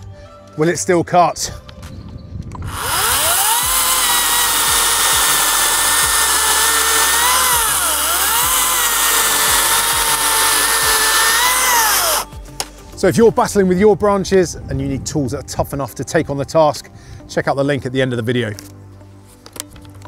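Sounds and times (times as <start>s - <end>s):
electric chainsaw whine: 2.6s - 12.4s
chain rasping through wood: 2.7s - 12.3s.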